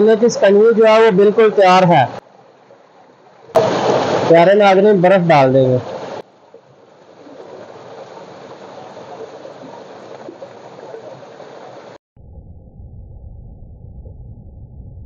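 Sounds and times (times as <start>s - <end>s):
water gushing from a pipe: 3.6s - 4.4s
low rumbling noise: 12.2s - 15.0s.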